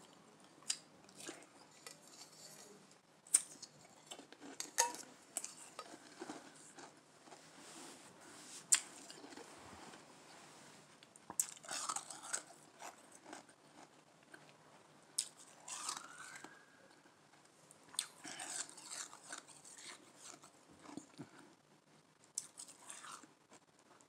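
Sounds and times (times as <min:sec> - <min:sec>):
ice crunching being chewed: 0:00.6 - 0:07.5, 0:08.7 - 0:09.5, 0:11.3 - 0:14.6, 0:15.2 - 0:21.6, 0:22.3 - 0:23.6.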